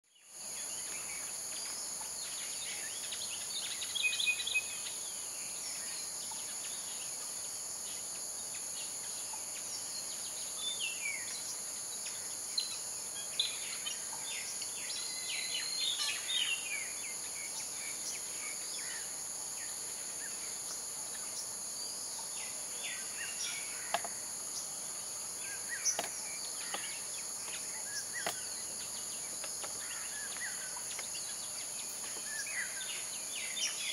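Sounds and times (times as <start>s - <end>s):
birds chirping: 8.7s - 33.9s.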